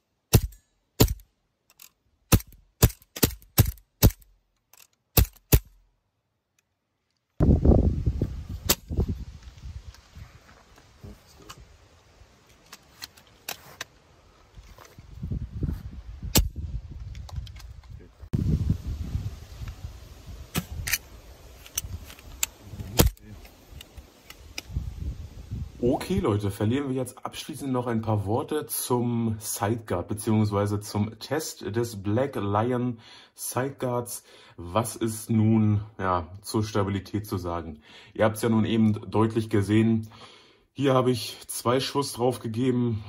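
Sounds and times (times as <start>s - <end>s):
airsoft pistol shots: 0.3s - 1.2s.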